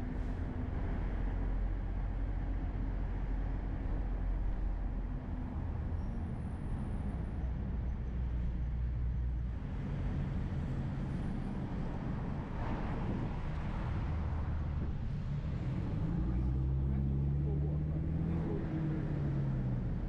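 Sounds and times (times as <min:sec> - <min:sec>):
vehicle engine rumble and road noise: 0:00.0 - 0:20.0.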